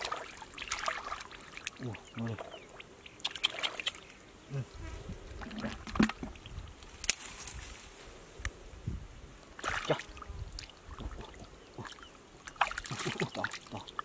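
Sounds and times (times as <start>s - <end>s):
hands splashing in muddy water: 0.0s - 2.5s, 11.8s - 13.7s.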